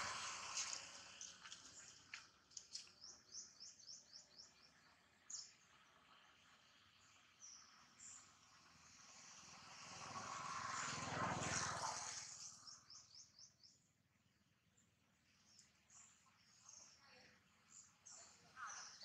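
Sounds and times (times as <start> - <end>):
motor vehicle passing: 0.0 - 2.7, 5.1 - 13.8
birds chirping: 15.4 - 19.0.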